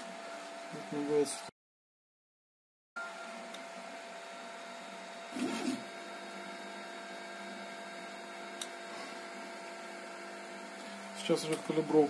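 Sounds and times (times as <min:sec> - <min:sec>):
three d printer humming and whining: 0:00.0 - 0:01.5, 0:03.0 - 0:12.0
burst of motor noise: 0:05.3 - 0:06.0.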